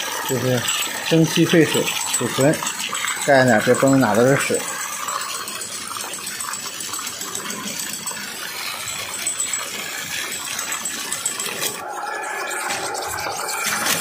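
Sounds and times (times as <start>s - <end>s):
steam engine metallic clatter: 0.0s - 14.0s
steam hiss: 11.8s - 14.0s.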